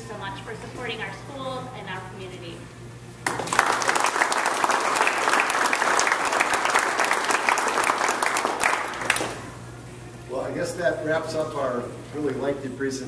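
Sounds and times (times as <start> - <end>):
crowd applauding: 3.2 - 9.5.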